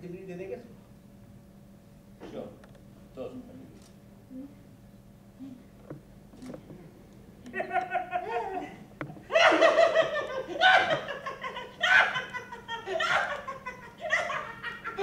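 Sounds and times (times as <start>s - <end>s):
man laughing hard: 7.5s - 15.0s.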